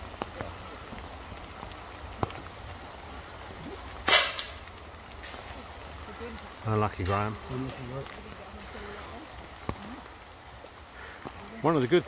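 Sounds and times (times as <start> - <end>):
steady rain: 0.0 - 12.0
water drip ticks: 0.0 - 12.0
air rifle shot: 4.1 - 4.5.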